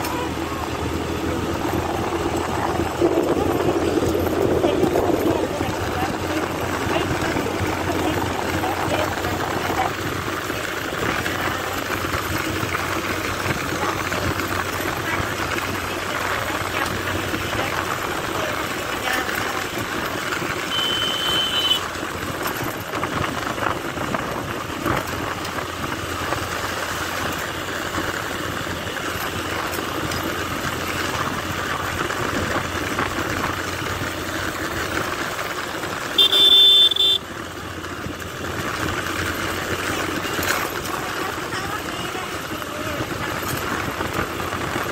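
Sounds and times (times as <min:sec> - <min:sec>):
wind noise: 0:00.0 - 0:18.2, 0:22.1 - 0:26.6, 0:42.6 - 0:44.9
motorcycle engine: 0:00.0 - 0:44.9
horn beeping: 0:20.6 - 0:21.9, 0:36.0 - 0:37.3.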